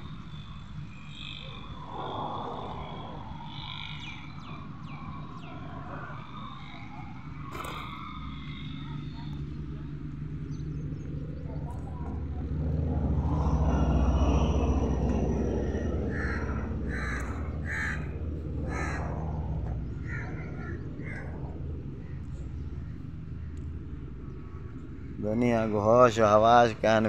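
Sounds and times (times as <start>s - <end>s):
steady low rumble: 0.0s - 27.0s
bird cawing: 0.3s - 10.0s, 13.4s - 25.2s.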